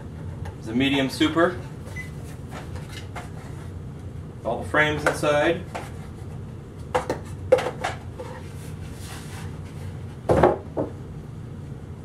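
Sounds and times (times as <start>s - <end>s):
box thumping down on bench: 10.3s - 10.9s.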